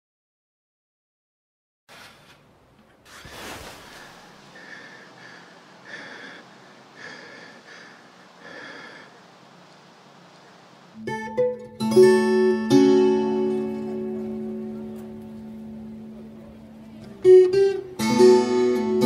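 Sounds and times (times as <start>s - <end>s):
man breathing heavily: 3.4s - 9.8s.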